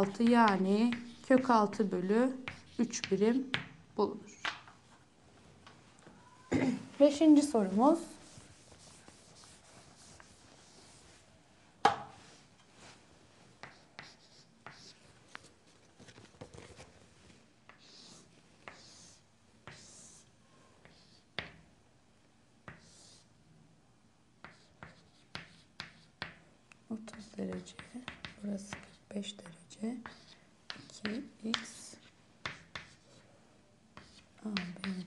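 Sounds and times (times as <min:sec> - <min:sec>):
chalk scratching on chalkboard: 0:00.0 - 0:01.8, 0:02.4 - 0:03.2, 0:07.7 - 0:11.1, 0:13.6 - 0:15.5, 0:17.7 - 0:21.3, 0:22.7 - 0:23.3, 0:24.4 - 0:26.3, 0:27.0 - 0:33.2, 0:34.0 - 0:35.0.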